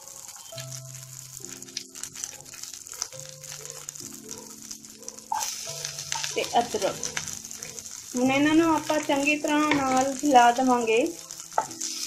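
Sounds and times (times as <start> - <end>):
hot oil sizzling: 0.0 - 12.0
small crackles: 0.0 - 12.0
soft background music: 0.0 - 12.0.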